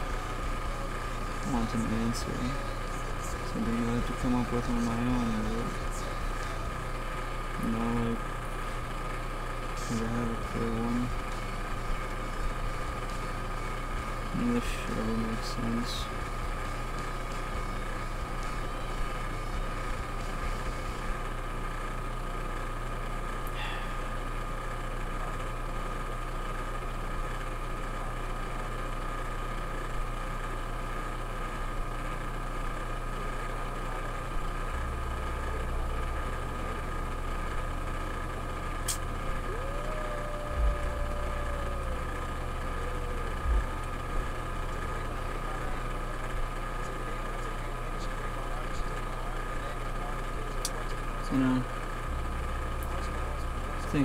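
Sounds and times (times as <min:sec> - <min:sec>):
steady mechanical hum: 0:00.0 - 0:54.0
soft low thumps: 0:40.5 - 0:41.4, 0:43.4 - 0:44.5.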